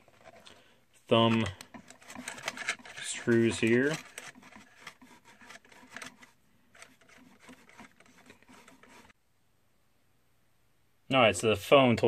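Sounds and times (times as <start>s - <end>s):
cardboard box rubbing and scraping: 1.8s - 9.1s.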